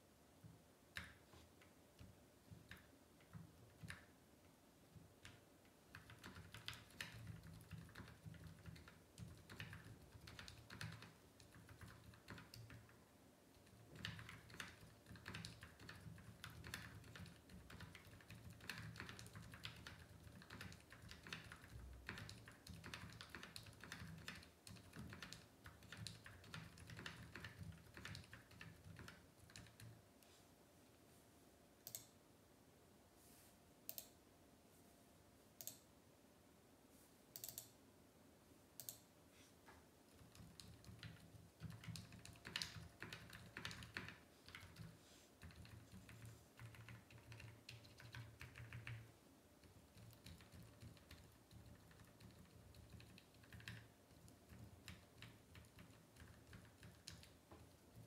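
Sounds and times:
muted mechanical keyboard typing: 2.0 - 4.1, 4.9 - 30.0, 31.8 - 32.1, 37.4 - 37.7, 38.8 - 39.0, 40.1 - 58.0.

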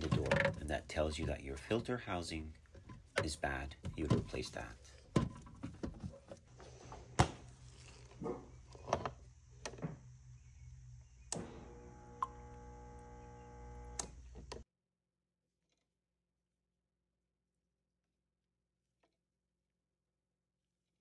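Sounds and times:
water dispenser humming: 11.3 - 14.6.

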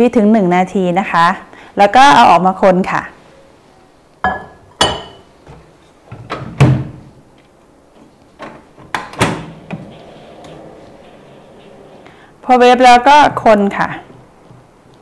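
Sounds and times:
ceramic bowl clink: 4.3 - 5.3.

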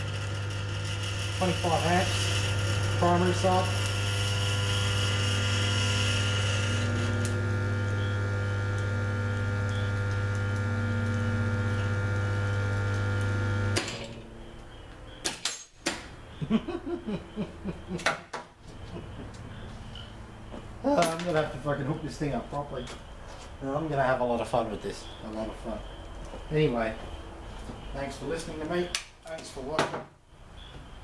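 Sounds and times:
welder transformer buzzing: 0.0 - 15.3.

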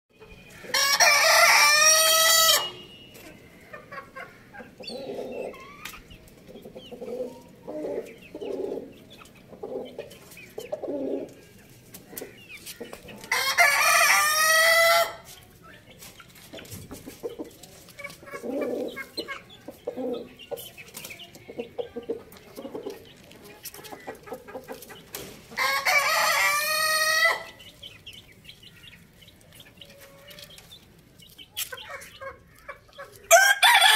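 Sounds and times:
hens clucking: 0.2 - 33.9
rooster crowing: 0.7 - 2.7, 33.3 - 33.9.

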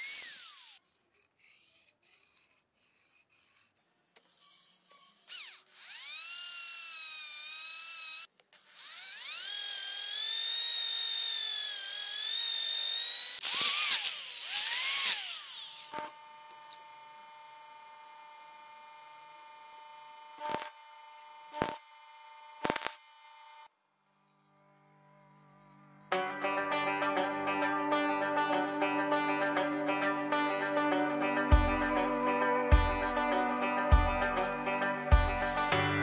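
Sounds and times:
electric drill drilling into metal: 0.0 - 0.8, 4.2 - 23.7
bit grinding and squealing: 0.0 - 16.8.

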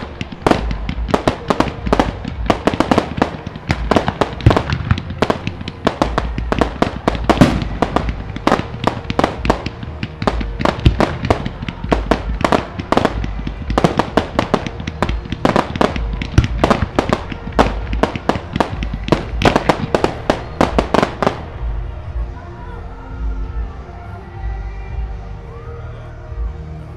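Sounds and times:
fireworks shells bursting: 0.0 - 21.4
low rumble: 0.0 - 25.6.

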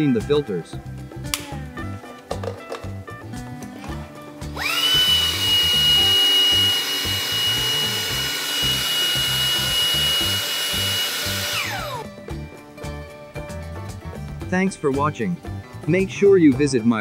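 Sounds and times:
vacuum motor whining: 4.5 - 12.2.

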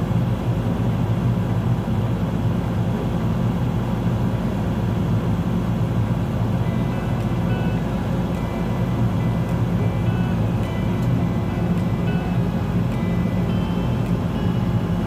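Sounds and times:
heavy machinery engine rumbling: 0.0 - 15.0.

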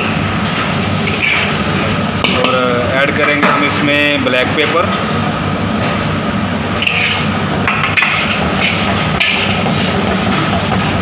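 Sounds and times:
food stir-frying: 6.4 - 11.0
metal spatula scraping a wok: 6.8 - 7.3, 7.9 - 10.3.

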